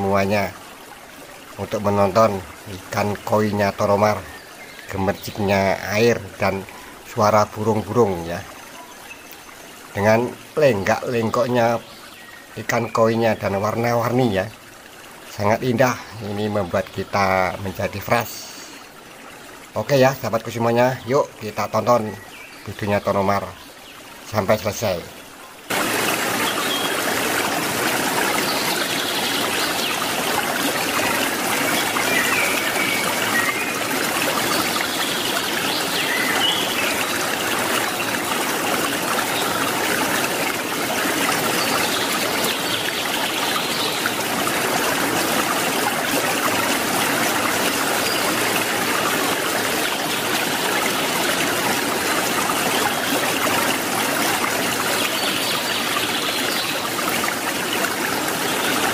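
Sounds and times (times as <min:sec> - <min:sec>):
water splashing into a pond: 0:25.6 - 0:58.9.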